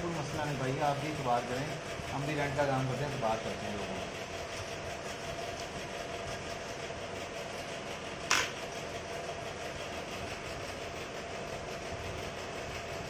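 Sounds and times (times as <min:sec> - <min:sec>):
electric hair clippers buzzing: 0:08.3 - 0:08.6
sharp click: 0:08.3 - 0:08.6.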